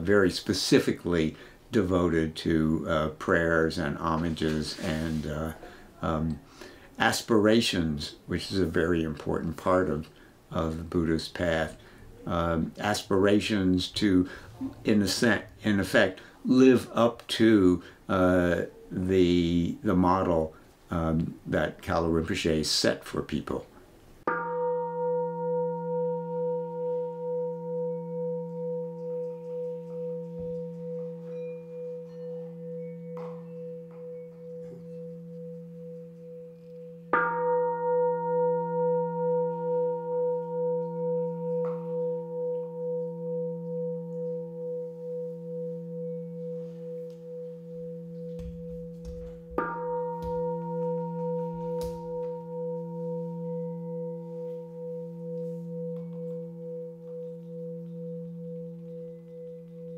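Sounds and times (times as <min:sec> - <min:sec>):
singing bowl ringing: 0:24.2 - 0:59.9.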